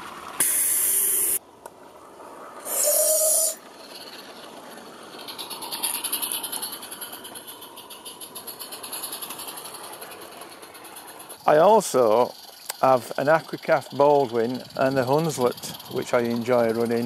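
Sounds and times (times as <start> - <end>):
model locomotive chuffing: 0.0 - 1.4, 2.0 - 17.0
loud steam hiss bursts: 0.4 - 1.4, 2.6 - 3.6.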